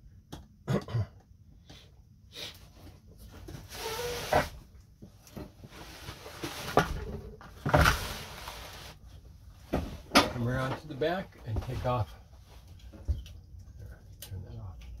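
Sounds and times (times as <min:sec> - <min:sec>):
scraping and handling noise: 0:02.5 - 0:13.4.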